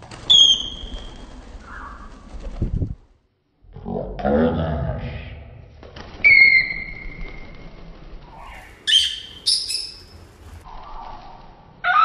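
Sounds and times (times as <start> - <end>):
bird whistling: 0.3 - 1.1, 6.3 - 7.4, 8.9 - 10.1
shrill bird squawks: 0.3 - 1.1, 6.3 - 7.3, 8.5 - 10.1.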